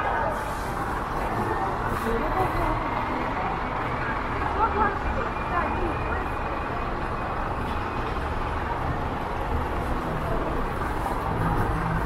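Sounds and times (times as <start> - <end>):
traffic hiss: 0.0 - 2.9
vehicle engines rumbling: 0.0 - 12.0.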